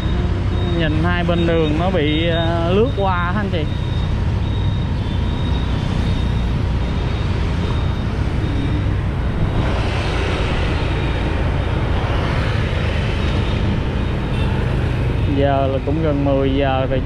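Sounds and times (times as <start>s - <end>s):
motorcycle engine: 0.0s - 16.3s
wind rush: 7.8s - 15.2s.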